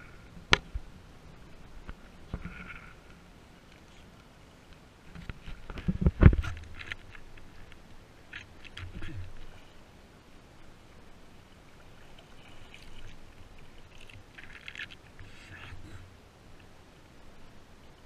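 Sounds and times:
paddle splashing and dripping: 10.6s - 16.8s.

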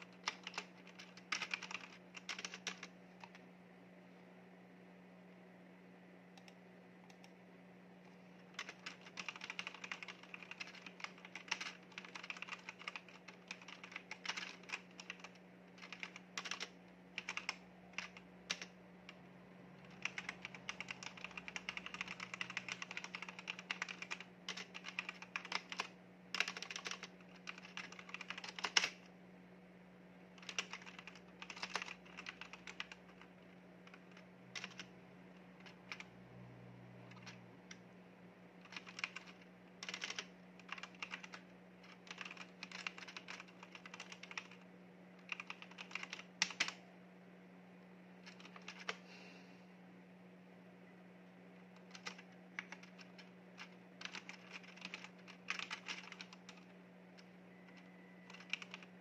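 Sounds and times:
faint low hum: 0.0s - 59.0s
mechanical keyboard key clicks: 8.6s - 18.7s, 19.9s - 29.0s, 45.2s - 46.8s, 54.0s - 56.6s.

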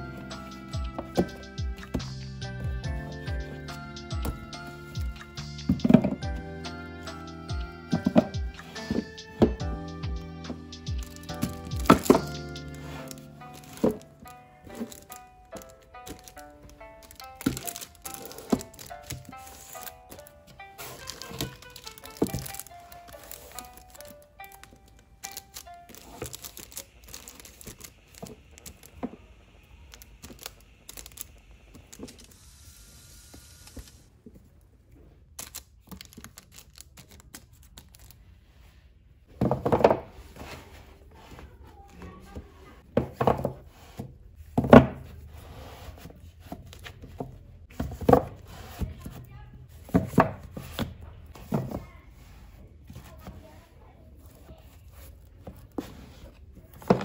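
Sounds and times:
books tapping and rustling: 0.1s - 29.4s, 39.2s - 57.0s
books thunking against shelf: 4.2s - 6.4s, 7.9s - 9.7s, 10.5s - 16.3s, 20.8s - 22.7s, 39.3s - 41.4s, 42.8s - 52.0s, 55.5s - 57.0s.

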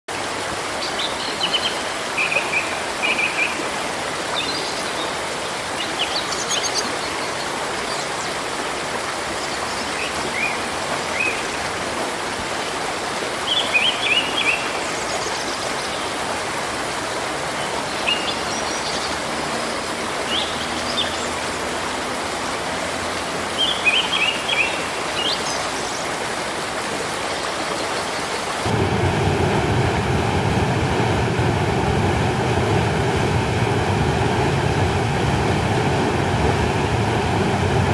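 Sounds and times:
churning white water: 0.1s - 37.9s
flowing water: 0.1s - 37.9s.

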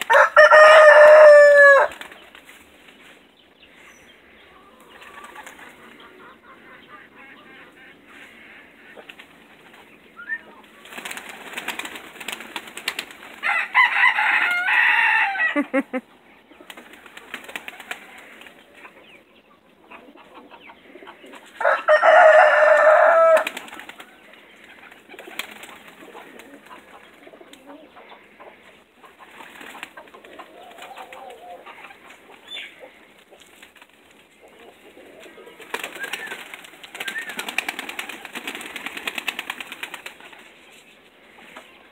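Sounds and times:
pigeon wings flapping: 1.8s - 2.5s, 10.8s - 13.4s, 16.7s - 18.6s, 22.8s - 24.1s, 24.8s - 26.9s, 29.4s - 31.4s, 35.6s - 40.5s.

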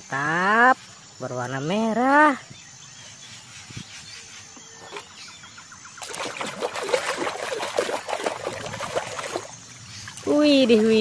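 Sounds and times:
water splashing in plastic basin: 6.0s - 11.0s.

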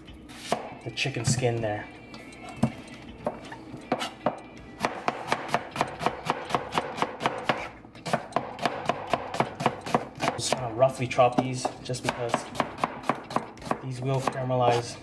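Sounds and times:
knife chopping on plastic board: 2.6s - 10.7s, 11.4s - 14.4s.

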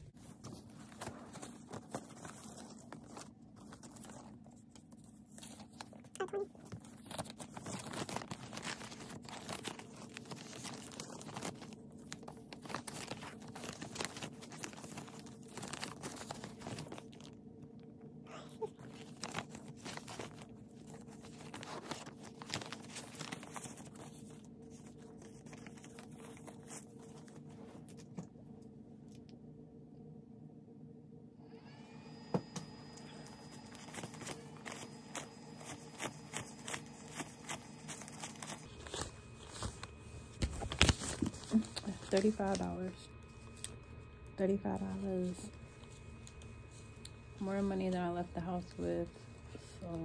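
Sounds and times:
faint steady hum: 0.0s - 50.0s
banknotes rustling and snapping: 0.1s - 17.9s, 18.6s - 28.3s, 32.6s - 43.9s.

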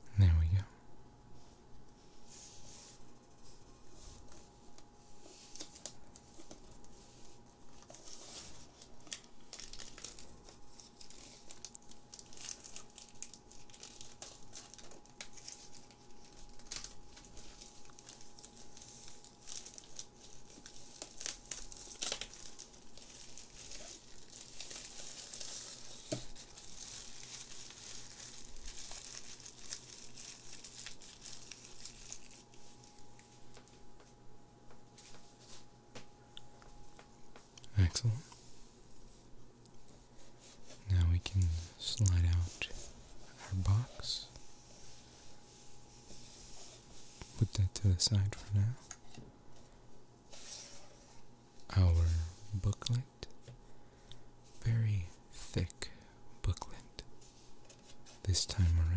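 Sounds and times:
plastic wrap crinkling and tearing: 5.4s - 33.8s.

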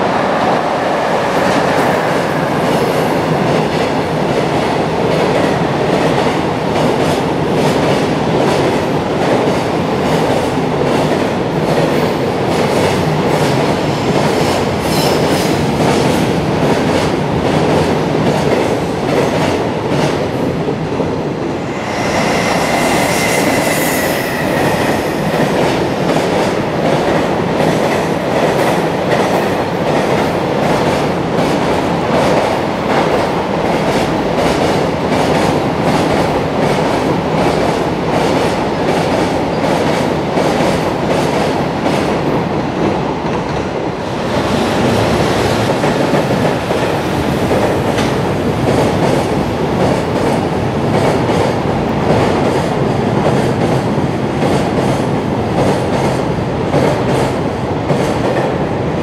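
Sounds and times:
freight train rumbling past: 0.0s - 59.0s
high whine: 21.6s - 25.6s.

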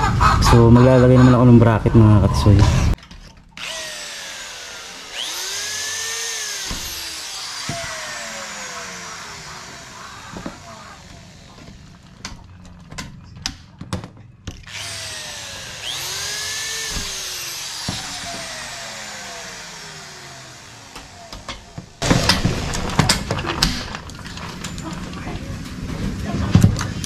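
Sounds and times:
electric drill boring metal: 3.6s - 12.6s, 14.6s - 22.0s.

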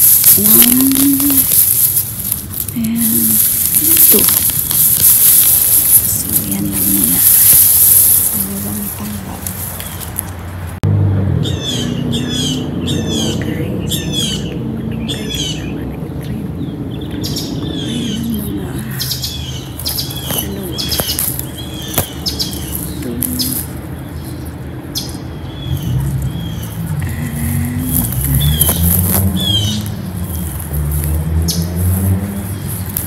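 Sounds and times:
sharp snaps: 0.0s - 10.4s, 19.0s - 23.9s
birds chirping: 0.0s - 10.8s, 11.4s - 33.0s
steady low hum: 0.0s - 33.0s.

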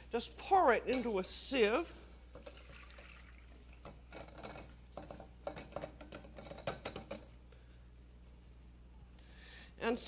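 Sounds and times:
liquid splashing into sieve: 2.4s - 3.8s
metal pans knocking: 3.8s - 7.2s.

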